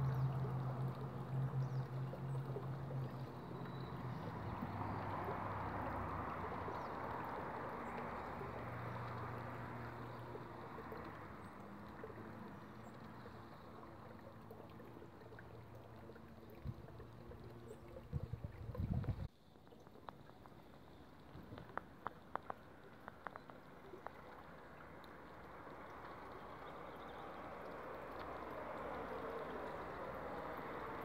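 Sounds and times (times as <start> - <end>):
low engine-like hum: 0.0 - 31.0.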